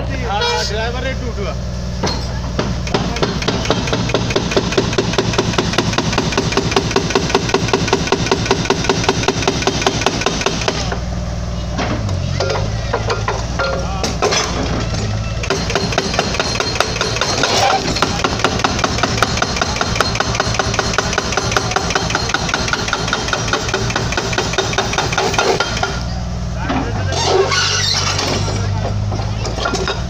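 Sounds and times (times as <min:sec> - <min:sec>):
diesel engine running: 0:00.0 - 0:30.0
hydraulic breaker hammering concrete: 0:02.6 - 0:11.0, 0:15.4 - 0:26.2.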